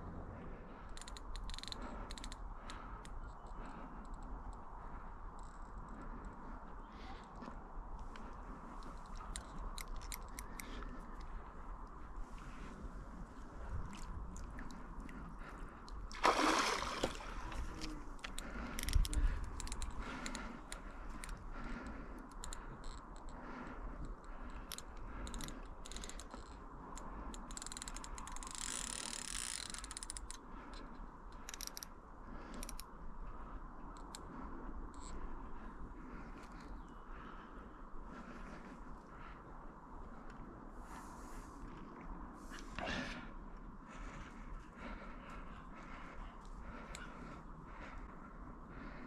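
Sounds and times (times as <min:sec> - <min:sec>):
water splashing: 0:16.1 - 0:17.8
fishing reel clicking: 0:27.4 - 0:30.4.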